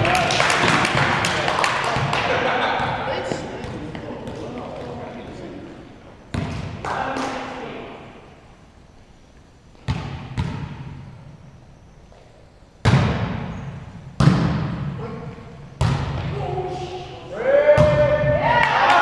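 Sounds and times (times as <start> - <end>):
volleyball smacks echoing: 6.3 - 7.5, 12.8 - 13.6, 14.2 - 15.0, 15.8 - 16.4, 17.7 - 18.8.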